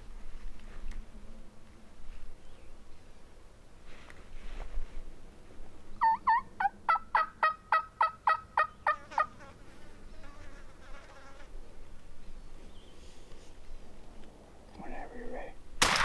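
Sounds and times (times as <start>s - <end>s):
turkey yelps: 6.0s - 9.3s.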